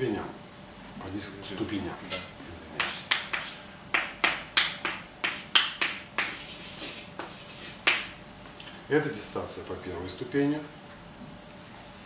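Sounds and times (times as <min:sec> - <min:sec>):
chalk tapping and scratching: 0:02.8 - 0:08.2.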